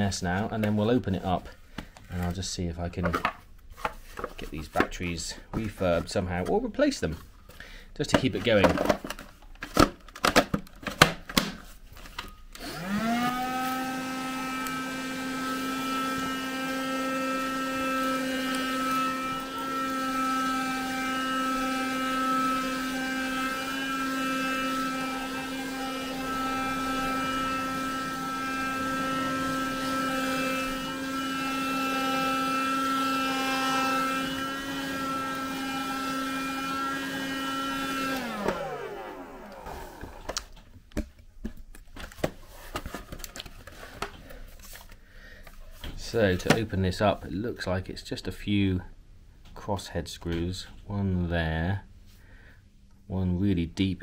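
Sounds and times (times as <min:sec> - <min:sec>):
handheld vacuum cleaner whine: 0:12.5 - 0:40.5.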